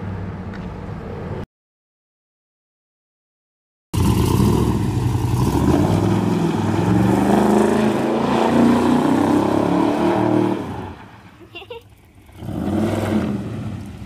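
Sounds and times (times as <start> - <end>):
car engine revving hard: 4.0 - 10.9, 12.3 - 13.8.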